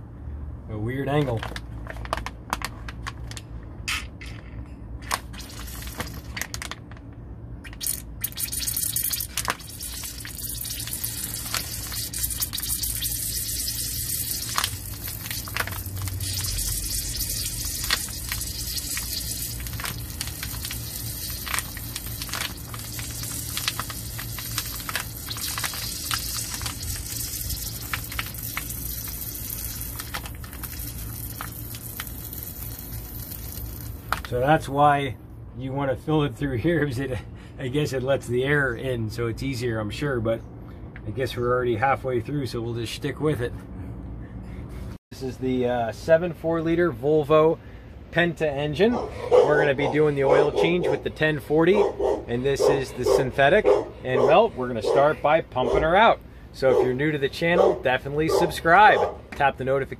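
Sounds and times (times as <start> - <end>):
lube squishing and gurgling: 5.1 - 6.4, 7.6 - 34.4.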